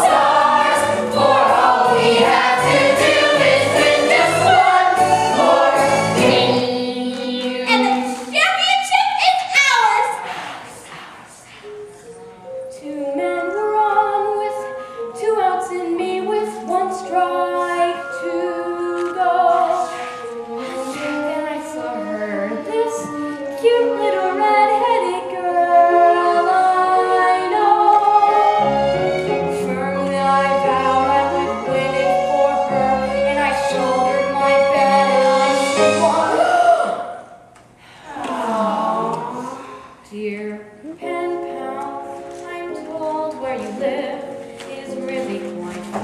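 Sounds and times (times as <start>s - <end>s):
ensemble singing with accompaniment: 0.0s - 8.3s, 15.8s - 41.5s.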